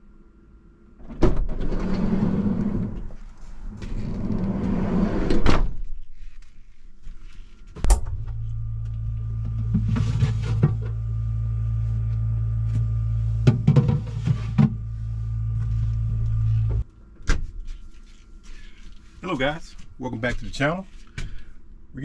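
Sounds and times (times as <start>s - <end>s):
steady low hum: 0.0s - 22.0s
door rolling: 1.0s - 5.8s.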